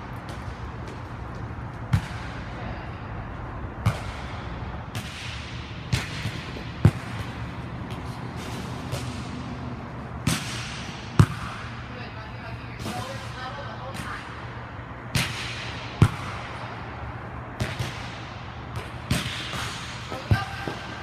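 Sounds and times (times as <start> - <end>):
steady low hum: 0.0 - 21.0
ball bouncing on court floor: 0.1 - 2.6, 3.8 - 9.4, 10.2 - 11.9, 15.1 - 16.7, 17.6 - 21.0
volleyball smacks: 3.8 - 7.3, 10.2 - 11.7, 17.6 - 20.9.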